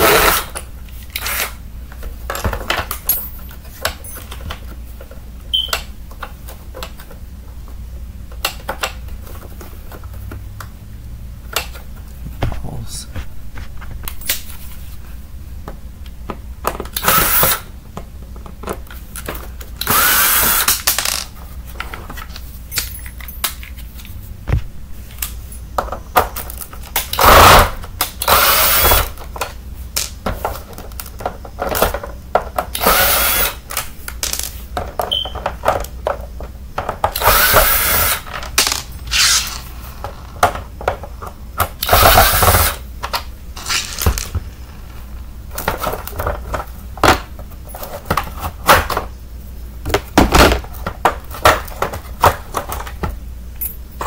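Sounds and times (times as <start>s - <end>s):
cordless drill running: 17.0s - 17.6s, 19.8s - 20.7s, 27.2s - 29.1s, 32.8s - 33.6s, 37.2s - 38.2s, 41.8s - 42.8s.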